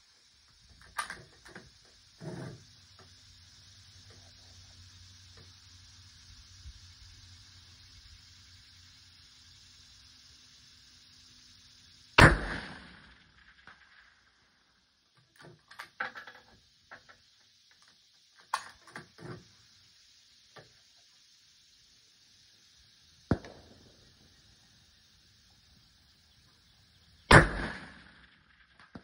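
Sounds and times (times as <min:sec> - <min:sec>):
rifle shots with echo: 0:12.2 - 0:13.0, 0:27.3 - 0:28.2.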